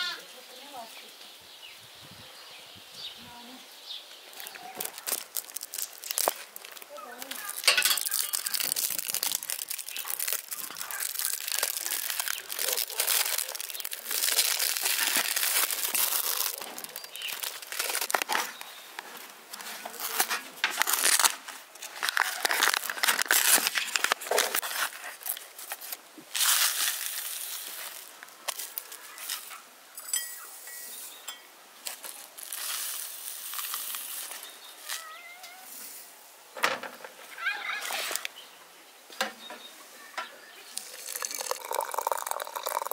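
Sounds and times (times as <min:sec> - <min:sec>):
packaging crinkling and rustling: 0:04.3 - 0:29.6, 0:31.8 - 0:35.2
dry tea leaves shaken into teapot: 0:04.4 - 0:18.3, 0:31.9 - 0:35.1, 0:40.8 - 0:42.9.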